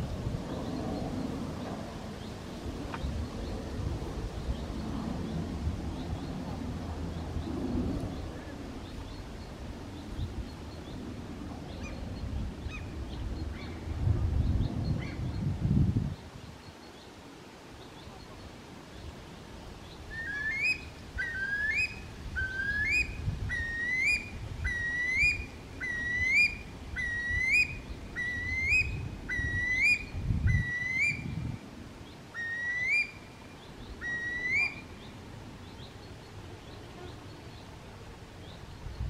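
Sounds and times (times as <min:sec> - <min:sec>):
curlew calling: 0:20.1 - 0:31.3, 0:32.3 - 0:35.1.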